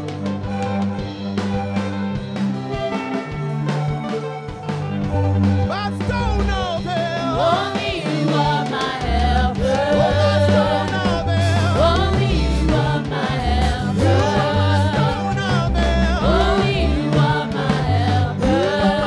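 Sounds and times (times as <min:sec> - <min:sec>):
band with bass and drums: 0:00.0 - 0:19.0
women singing gospel: 0:07.1 - 0:19.0.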